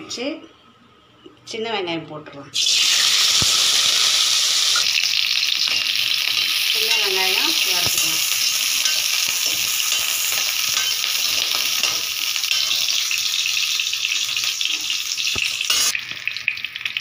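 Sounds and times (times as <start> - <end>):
onions sizzling in hot oil: 2.6 - 17.0
steel ladle scraping pan: 8.0 - 13.4, 14.1 - 16.0.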